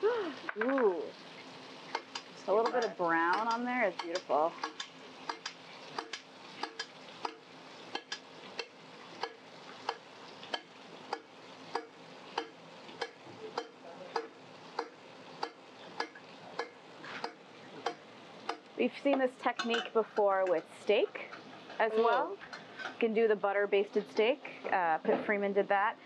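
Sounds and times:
butter sizzling faintly: 0:00.0 - 0:26.0
metal spoon clinking on skillet: 0:19.5 - 0:20.6.

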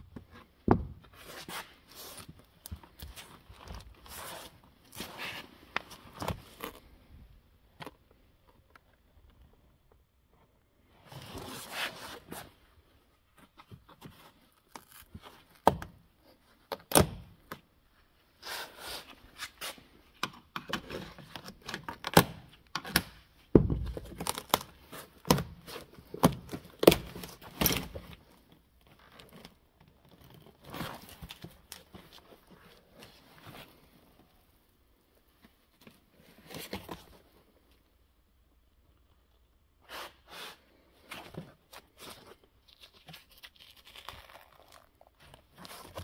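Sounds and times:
tearing sound: 0:42.7 - 0:46.0.

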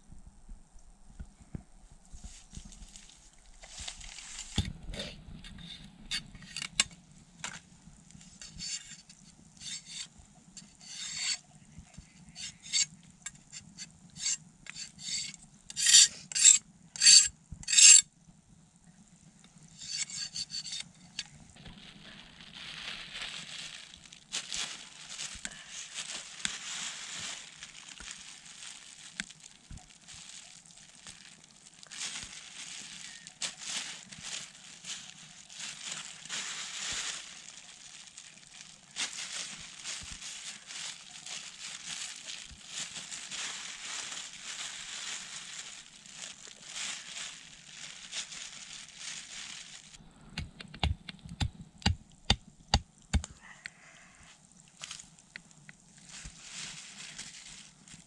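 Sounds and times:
soft continuous hiss: 0:00.0 - 0:58.0
rubbing and scraping strokes: 0:08.2 - 0:18.0, 0:19.8 - 0:21.3.

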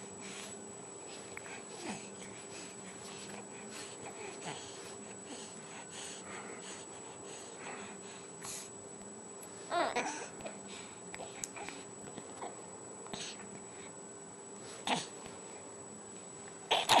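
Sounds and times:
baby vocal sounds: 0:09.7 - 0:10.3, 0:16.7 - 0:17.0.

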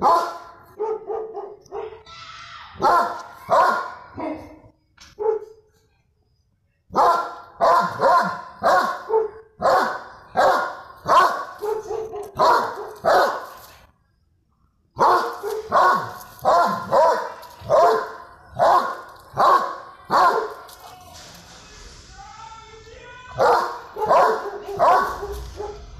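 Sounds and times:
dog barking: 0:00.0 - 0:02.0, 0:02.8 - 0:04.6, 0:05.2 - 0:05.7, 0:06.9 - 0:13.5, 0:15.0 - 0:20.6, 0:23.4 - 0:25.9.

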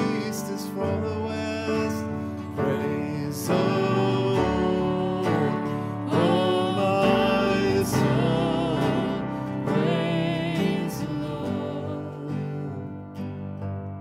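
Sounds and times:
instrumental accompaniment: 0:00.0 - 0:14.0
woman singing worship song: 0:03.4 - 0:12.8.

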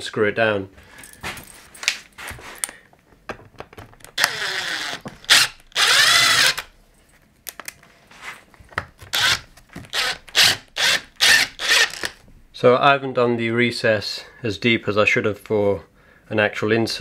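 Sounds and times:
cordless driver motor whine: 0:04.2 - 0:06.7.

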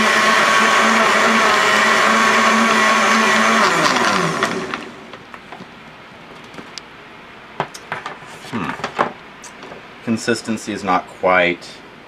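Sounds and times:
blender motor spinning down: 0:00.0 - 0:05.1.

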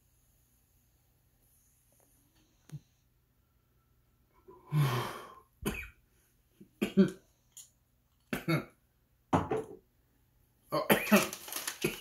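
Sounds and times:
man breathing out: 0:04.5 - 0:05.6
man coughing: 0:10.7 - 0:12.0.

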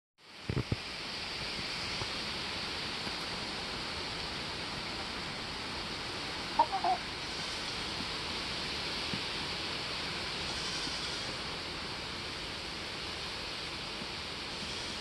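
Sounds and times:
steady background hiss: 0:00.2 - 0:15.0
chicken clucking: 0:06.6 - 0:07.0.

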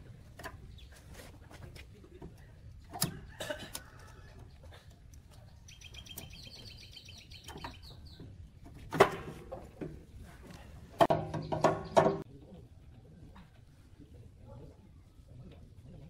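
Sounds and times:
bird chirping: 0:05.3 - 0:08.4, 0:11.2 - 0:12.2.

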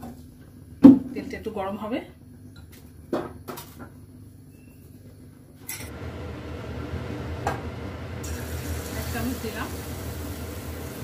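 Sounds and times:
gas burner hissing: 0:05.9 - 0:11.0.

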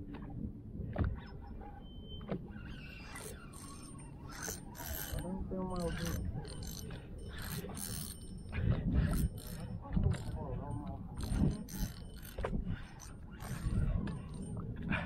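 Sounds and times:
fishing reel clicking and whirring: 0:02.8 - 0:14.6.

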